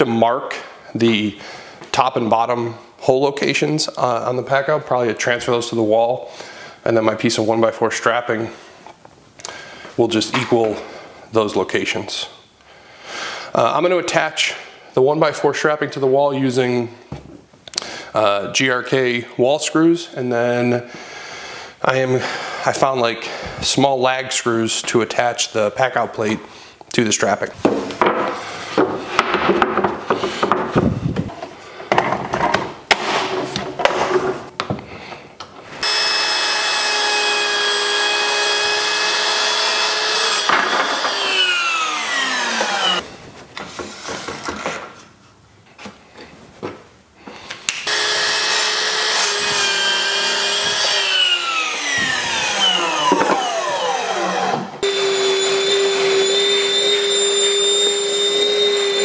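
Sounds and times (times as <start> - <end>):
miter saw cutting wood: 35.8 - 43.0, 47.8 - 59.0
shop vacuum humming: 35.8 - 43.0, 47.9 - 59.0.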